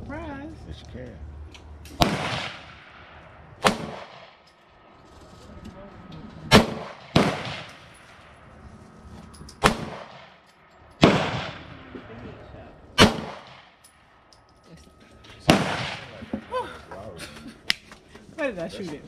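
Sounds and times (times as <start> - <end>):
gunshots echoing: 2.0 - 4.9, 6.5 - 8.4, 9.6 - 12.0, 13.0 - 13.8, 15.4 - 16.3.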